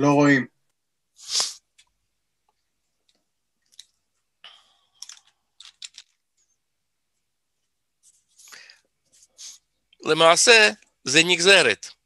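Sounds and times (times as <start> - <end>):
short breathy hiss: 1.2 - 1.6.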